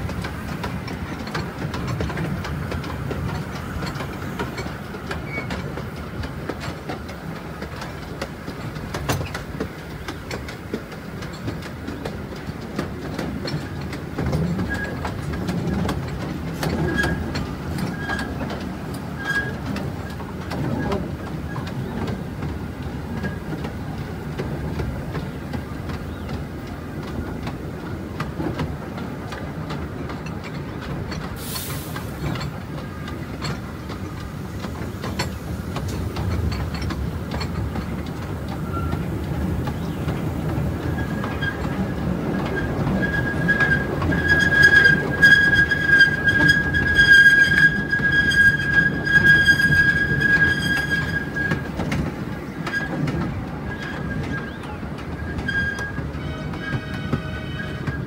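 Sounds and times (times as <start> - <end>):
small train rumbling on track: 0.0 - 58.0
high wheel squeal: 38.5 - 39.1, 40.8 - 51.7, 53.7 - 58.0.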